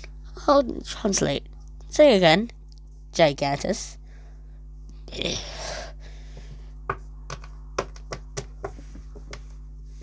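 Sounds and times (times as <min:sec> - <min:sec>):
fingers tapping on hard surface: 0:06.9 - 0:09.4.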